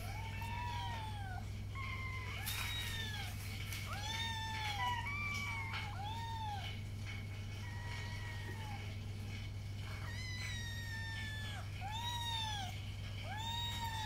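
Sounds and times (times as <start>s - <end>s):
kittens mewing: 0.0s - 6.9s, 10.0s - 14.0s
steady low hum: 0.0s - 14.0s.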